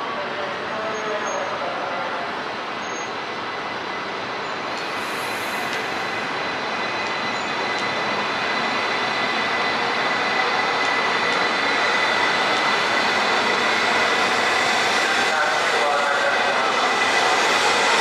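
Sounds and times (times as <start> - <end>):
train running with high whine: 0.0 - 18.0.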